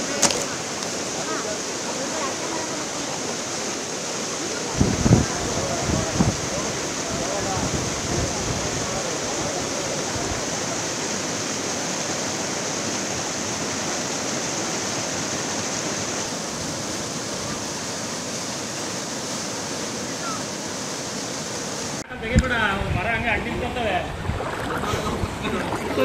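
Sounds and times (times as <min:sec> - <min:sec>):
floodwater rushing: 0:00.0 - 0:26.0.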